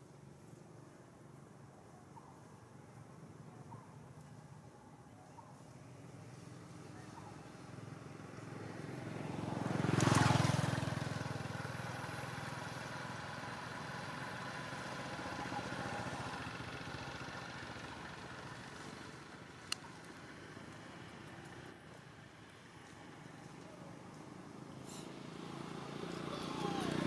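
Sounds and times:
vehicle passing: 6.0s - 27.0s.

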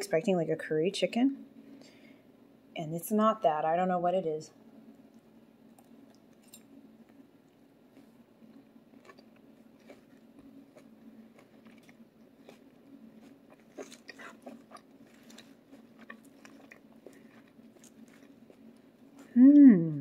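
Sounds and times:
faint steady hum: 0.0s - 20.0s
chewing: 5.1s - 19.4s.

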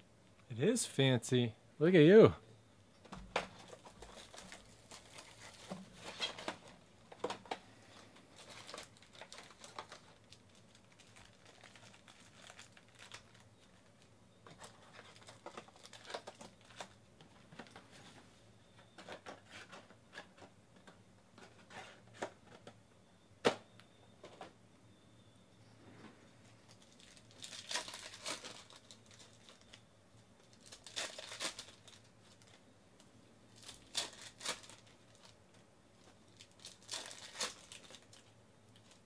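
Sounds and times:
foil packs rustling: 3.4s - 18.2s, 26.6s - 29.8s, 30.4s - 32.6s, 33.5s - 39.0s
plastic wrapping crinkling and tearing: 3.5s - 17.0s, 26.6s - 29.8s, 30.4s - 32.6s, 33.5s - 39.0s.

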